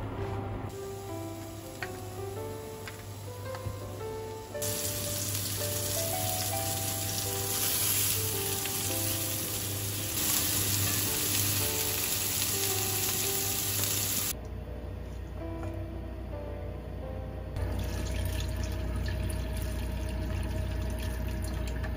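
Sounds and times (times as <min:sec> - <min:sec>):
mushrooms sizzling in a frying pan: 0:00.7 - 0:14.3.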